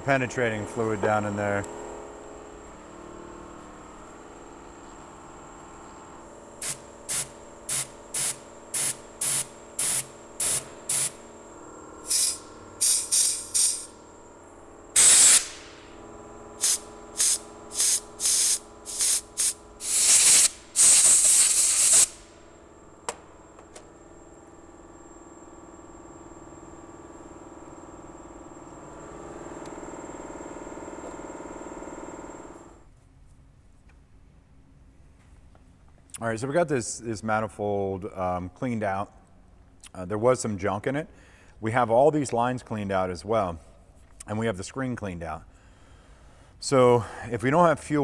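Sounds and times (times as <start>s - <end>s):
aerosol can spraying: 6.6s - 11.2s, 12.0s - 13.9s, 15.0s - 15.7s, 16.6s - 22.2s.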